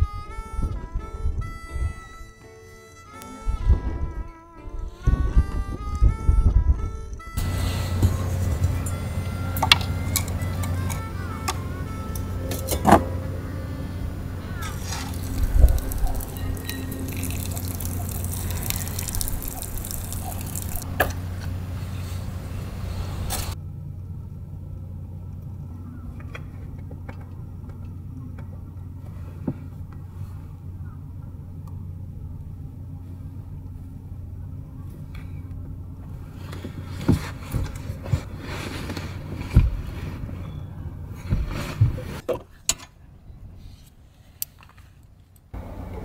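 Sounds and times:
low hum: 0:00.0 - 0:42.2
fire crackling and sizzling: 0:07.4 - 0:12.2, 0:14.1 - 0:23.6
water pouring into cup: 0:15.0 - 0:20.8.

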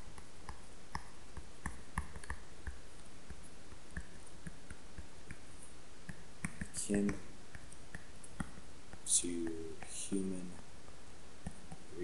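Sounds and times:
steady hiss: 0:00.0 - 0:12.0
pen tapping on tablet screen: 0:00.1 - 0:05.4, 0:06.0 - 0:09.9.

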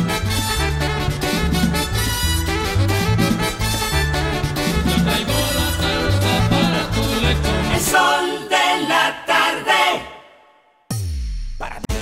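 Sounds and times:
steady bass line: 0:00.0 - 0:07.9
upbeat latin dance music: 0:00.0 - 0:10.0.

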